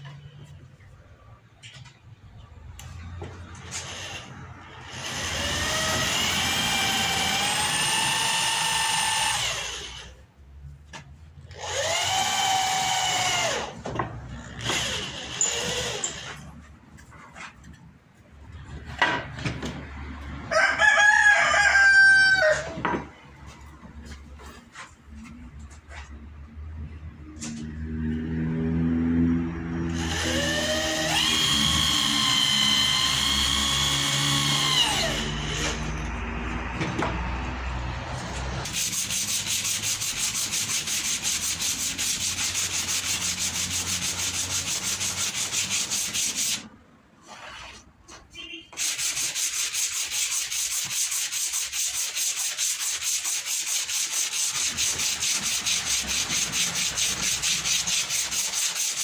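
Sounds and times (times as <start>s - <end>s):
cordless drill boring wood: 3.8s - 10.1s, 11.5s - 13.8s, 14.5s - 16.4s, 29.9s - 35.8s
sandpaper rubbing wood: 38.7s - 47.8s, 48.8s - 59.0s.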